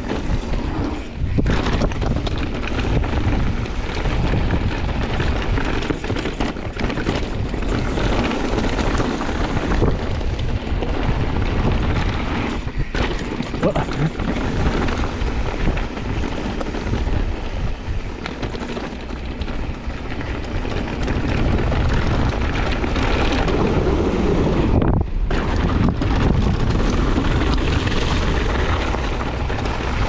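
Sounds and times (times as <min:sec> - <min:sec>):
bike tyres rolling on gravel: 0:00.0 - 0:30.0
stones and bike rattling: 0:00.0 - 0:30.0
wind over microphone: 0:00.0 - 0:30.0.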